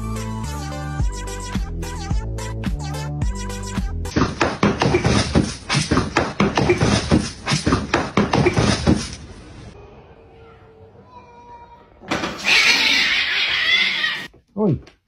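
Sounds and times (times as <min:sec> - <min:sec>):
music: 0:00.0 - 0:04.2.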